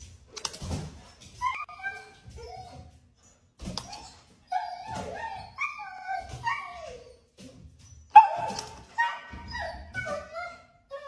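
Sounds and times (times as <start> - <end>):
dog whining and yelping: 1.4 - 2.9, 3.8 - 7.4, 8.1 - 11.0
dog barking: 8.2 - 9.4.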